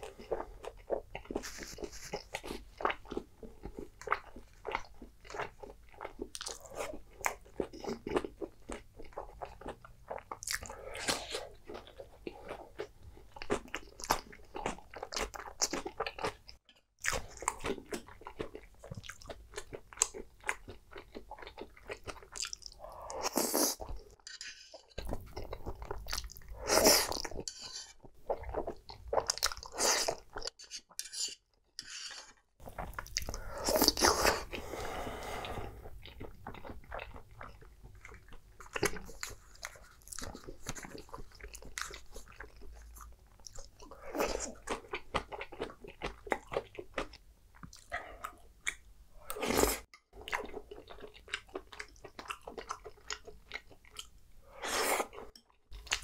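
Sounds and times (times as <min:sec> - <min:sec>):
wet chewing: 0:00.0 - 0:24.2, 0:32.6 - 0:56.0
slurping noodles: 0:26.1 - 0:27.4, 0:32.6 - 0:36.0, 0:54.4 - 0:55.4.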